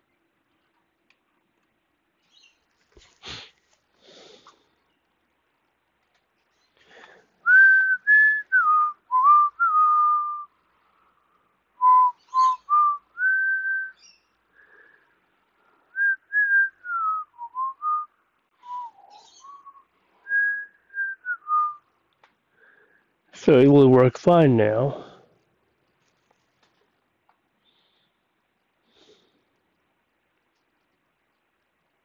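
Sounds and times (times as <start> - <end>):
person whistling a slow tune: 7.4 - 10.5, 11.8 - 14.0, 15.9 - 21.9.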